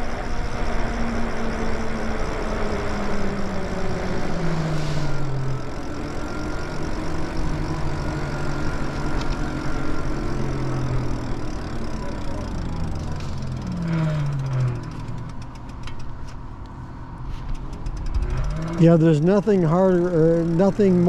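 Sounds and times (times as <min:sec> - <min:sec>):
electric motor humming: 0:00.0 - 0:16.2.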